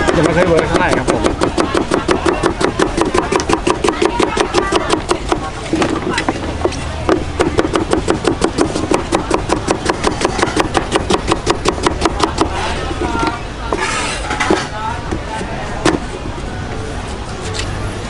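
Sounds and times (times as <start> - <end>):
cleaver chopping on wooden board: 0.0 - 12.5.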